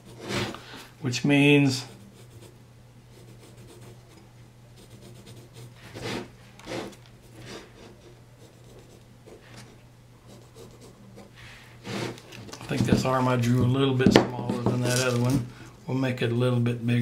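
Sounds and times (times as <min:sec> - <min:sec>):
pencil scratching on wood: 0:00.0 - 0:00.6, 0:01.8 - 0:04.2, 0:04.8 - 0:12.2
steady low hum: 0:00.0 - 0:17.0.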